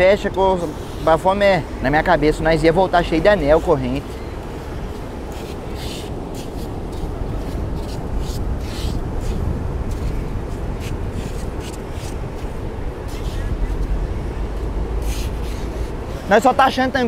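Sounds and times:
surf and wind rumble: 0.0 - 17.0.

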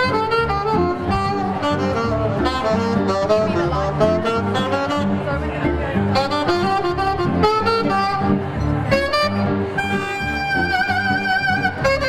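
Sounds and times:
bass guitar: 0.0 - 12.0
guitar: 0.0 - 12.0
keyboard: 0.0 - 12.0
saxophone melody: 0.0 - 12.0.

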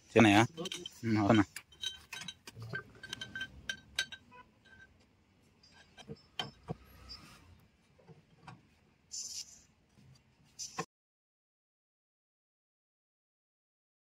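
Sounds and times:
light clicks and clinks: 0.4 - 4.9
short hiss: 9.1 - 9.7.

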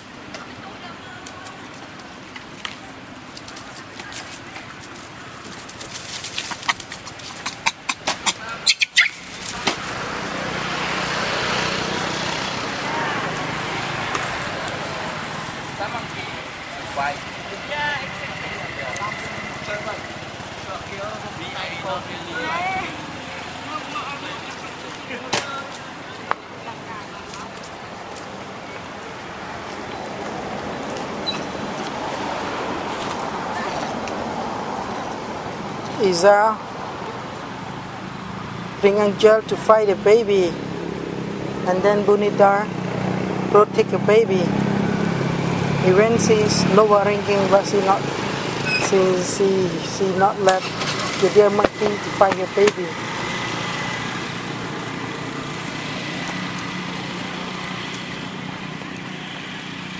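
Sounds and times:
rushing outdoor background noise: 0.0 - 59.9
rising squeak: 31.2 - 31.6, 48.6 - 48.9.

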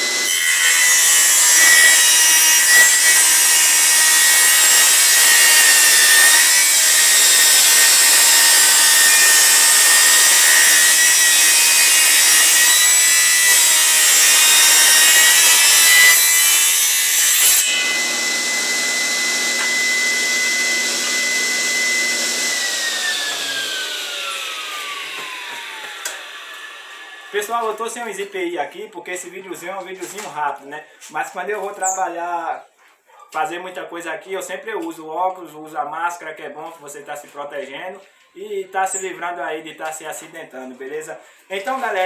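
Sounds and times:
saw blade whine: 0.0 - 27.4
circular saw cutting wood: 0.0 - 27.9.

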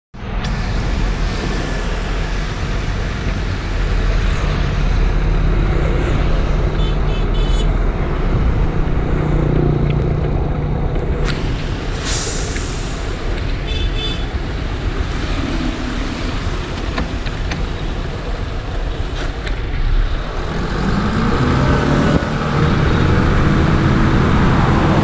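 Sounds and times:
diesel truck engine rumbling: 0.1 - 25.0
passing traffic: 0.2 - 25.0
motorbikes passing: 13.0 - 25.0.

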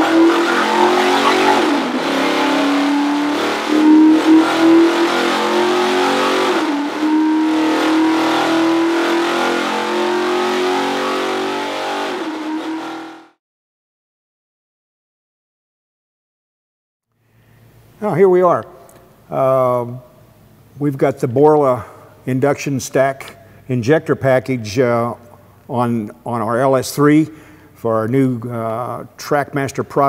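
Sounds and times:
engine running hard: 0.0 - 10.6.

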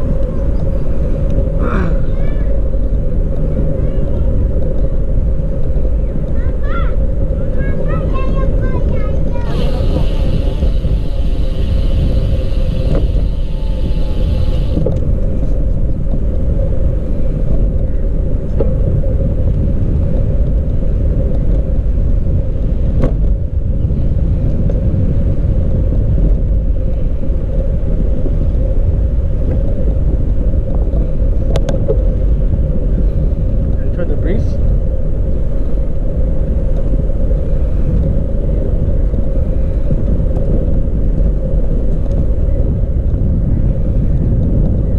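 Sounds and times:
bicycle tyre noise: 0.0 - 44.9
wind rumble on microphone: 0.0 - 44.9
high hiss: 9.5 - 14.8.

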